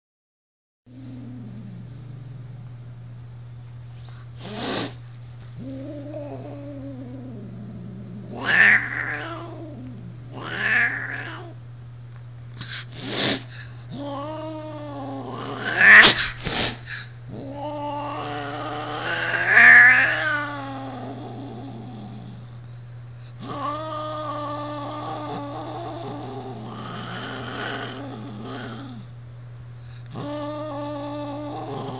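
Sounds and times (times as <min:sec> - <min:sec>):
cat hissing: 0:04.0 - 0:05.0, 0:08.2 - 0:11.6, 0:12.6 - 0:21.2
cat yowling and growling: 0:05.6 - 0:11.6, 0:13.1 - 0:22.3, 0:23.4 - 0:29.1, 0:30.1 - 0:31.9.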